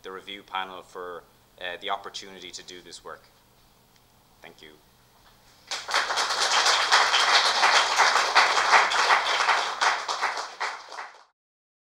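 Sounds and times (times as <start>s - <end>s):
audience applauding: 5.7s - 11.3s.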